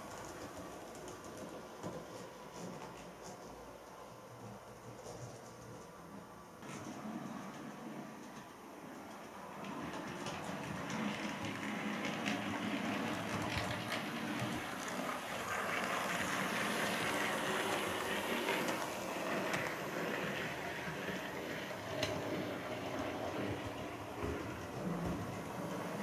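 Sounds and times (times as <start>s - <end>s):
model trains whirring on rails: 0.0s - 26.0s
small clicks of track: 8.2s - 15.1s.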